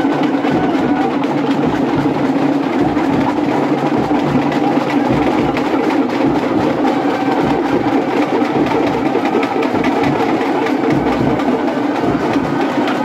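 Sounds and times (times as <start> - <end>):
dense crowd noise: 0.0 - 13.0
rapid drumming: 0.0 - 13.0.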